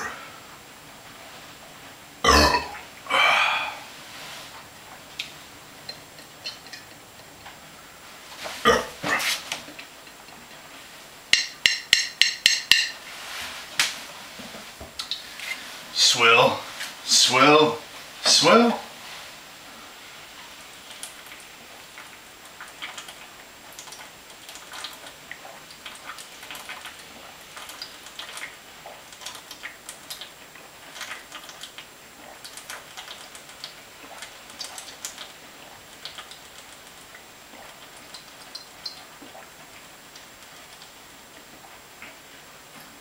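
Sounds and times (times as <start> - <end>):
person gulping and swallowing: 2.2 - 3.9.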